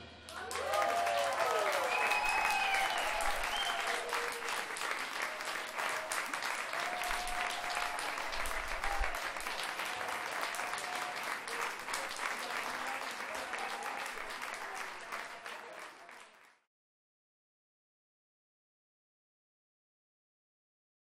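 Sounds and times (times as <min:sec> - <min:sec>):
audience applauding: 0:00.3 - 0:16.7.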